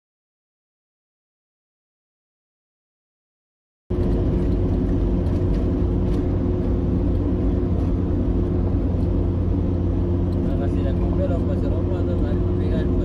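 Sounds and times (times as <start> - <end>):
vehicle engine rumble: 3.9 - 13.0.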